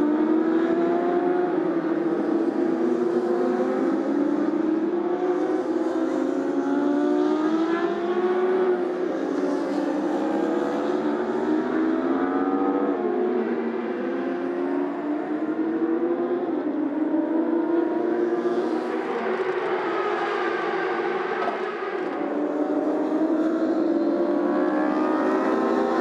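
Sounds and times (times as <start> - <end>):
racing motorcycle engines passing: 0.0 - 26.0.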